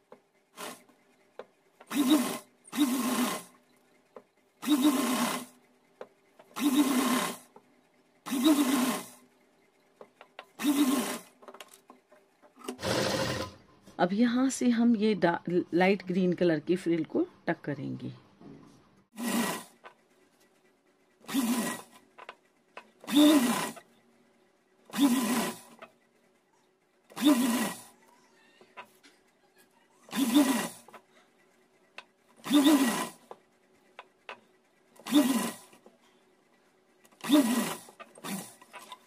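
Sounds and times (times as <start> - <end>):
sewing machine stitching: 0.0 - 13.6, 19.1 - 24.0, 24.8 - 26.4, 27.0 - 28.1, 30.0 - 39.0.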